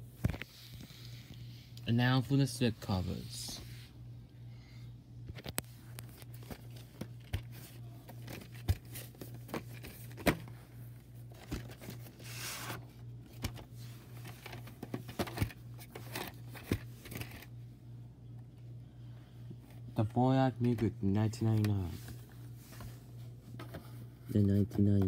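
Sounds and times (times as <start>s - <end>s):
steady low hum: 0.0s - 25.0s
cardboard rustling and scraping: 5.9s - 10.6s, 11.2s - 17.5s.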